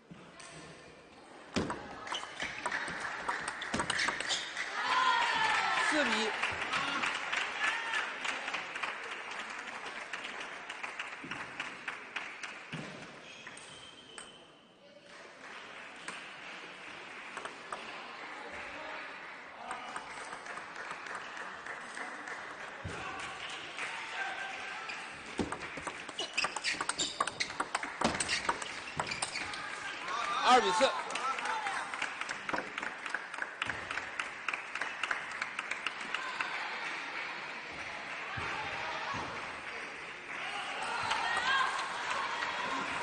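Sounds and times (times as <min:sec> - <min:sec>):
audience applause: 0:02.6 - 0:12.7, 0:15.4 - 0:24.8, 0:27.6 - 0:43.0
table tennis ball clicks: 0:25.4 - 0:29.5.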